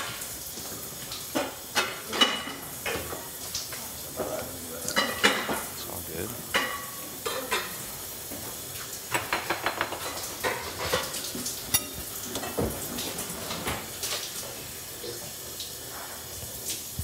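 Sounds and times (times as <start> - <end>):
dishes and cutlery clinking: 1.3 - 3.3, 4.2 - 7.9, 9.1 - 14.3.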